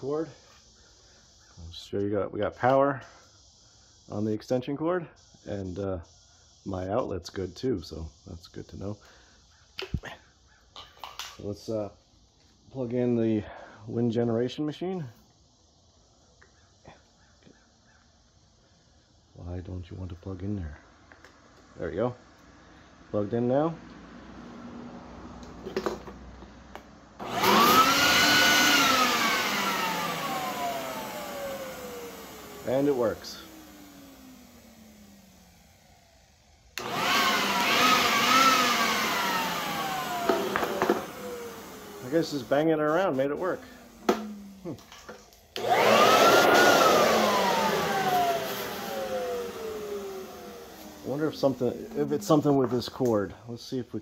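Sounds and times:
leaf blower motor whine: 0:23.6 - 0:53.1.

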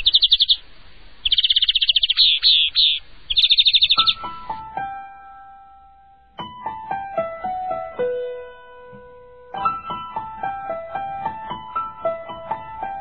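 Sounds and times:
piano music: 0:03.9 - 0:13.0.

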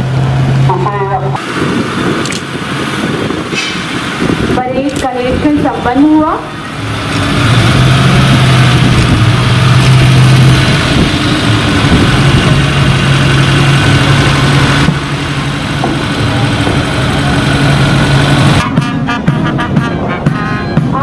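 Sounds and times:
jeep engine driving past: 0:06.4 - 0:19.6.

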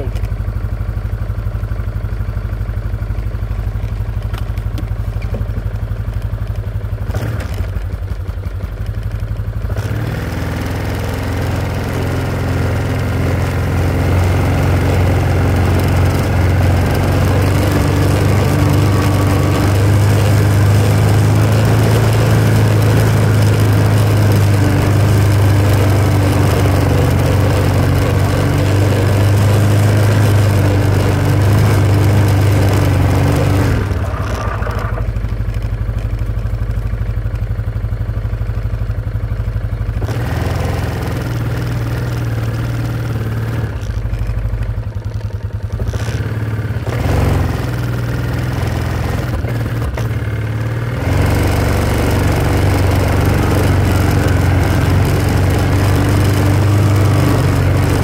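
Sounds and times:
vehicle engine idling and revving: 0:00.0 - 0:58.0.

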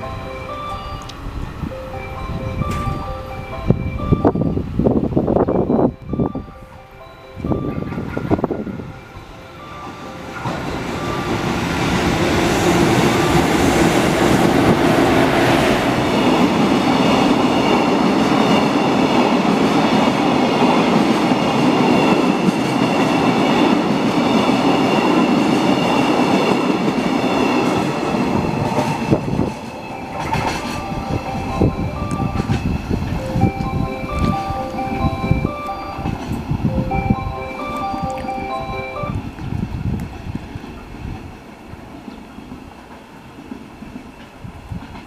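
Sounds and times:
train wheels clickety-clack: 0:09.8 - 0:37.1, 0:39.2 - 0:45.0.

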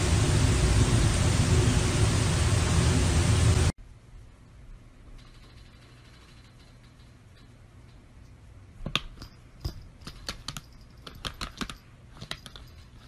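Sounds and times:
laptop keyboard clicking: 0:08.9 - 0:12.9.

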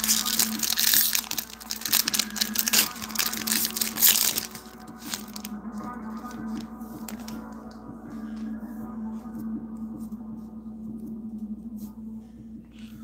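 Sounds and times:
foil wrapper crinkling and tearing: 0:00.0 - 0:07.4.

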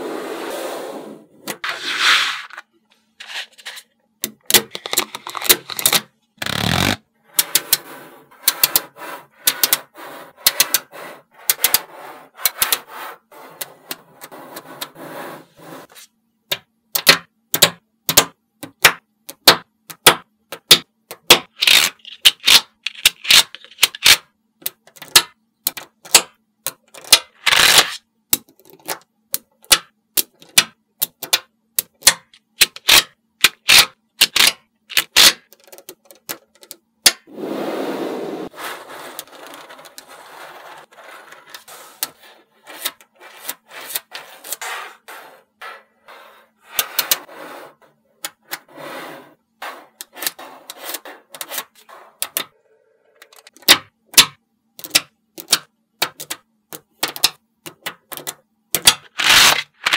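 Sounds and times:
rattling scrape of magnetic balls: 0:00.0 - 0:03.8.

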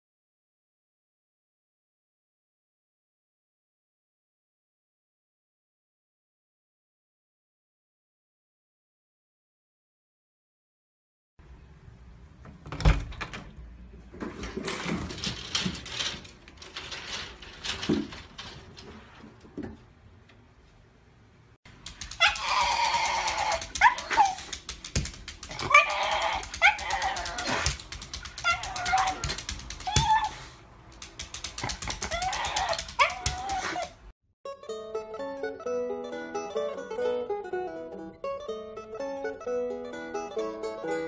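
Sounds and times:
dog whining and yipping: 0:22.1 - 0:24.6, 0:25.4 - 0:30.6, 0:31.9 - 0:34.0.

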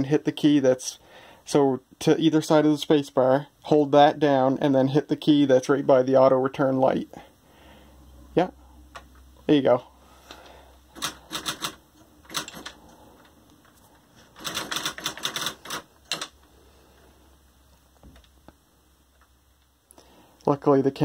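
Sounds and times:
electronic typewriter printing: 0:10.9 - 0:12.8, 0:14.3 - 0:16.4.

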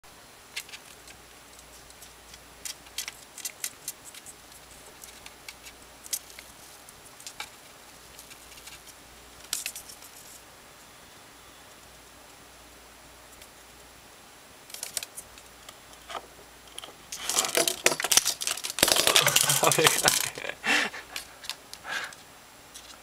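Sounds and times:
small claws clicking on shelf: 0:00.5 - 0:06.5, 0:16.7 - 0:20.4.

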